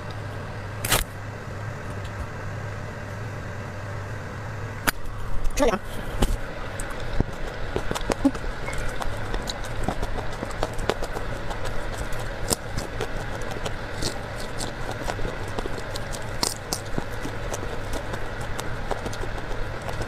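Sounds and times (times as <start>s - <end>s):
chewing crisp vegetables: 6.3s - 20.0s
mouth clicks: 6.8s - 20.0s.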